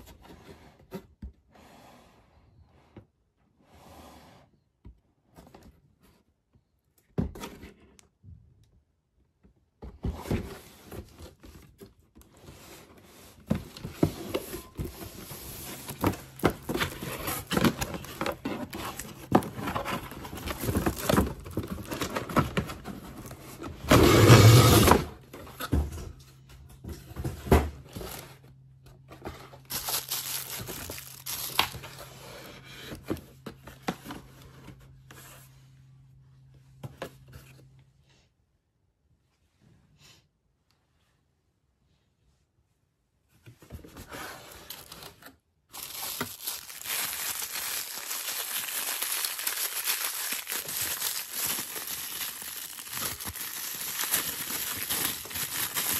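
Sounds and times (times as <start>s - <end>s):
cardboard and plastic packaging handling: 9.9s - 35.6s, 43.6s - 55.9s.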